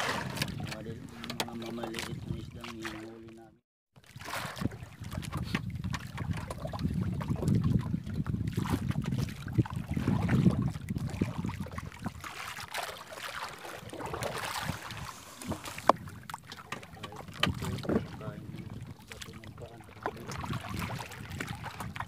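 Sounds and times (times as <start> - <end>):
wind rumble on microphone: 0.0 - 2.9, 4.2 - 12.4, 13.8 - 22.0
paddle stroking through water: 0.0 - 3.4, 4.0 - 22.0
water splashing and dripping: 8.7 - 18.4.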